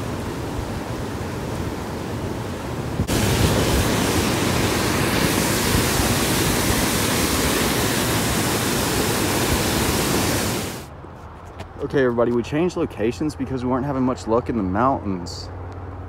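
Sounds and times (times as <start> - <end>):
stream water washing: 0.0 - 10.9
waterfall rushing: 0.0 - 10.9.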